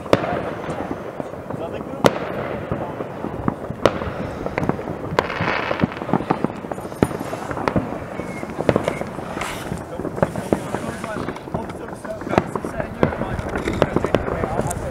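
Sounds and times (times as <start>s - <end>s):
crackling hiss: 0.0s - 14.9s
distant fireworks bangs and pops: 0.0s - 14.9s
sharp firework bangs: 0.0s - 14.9s.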